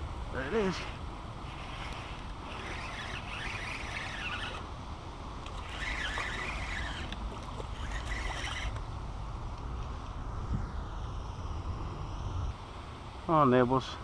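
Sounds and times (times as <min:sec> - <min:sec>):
wind rumble on microphone: 0:00.0 - 0:13.3
fishing reel whirring: 0:00.4 - 0:04.7, 0:05.4 - 0:08.8.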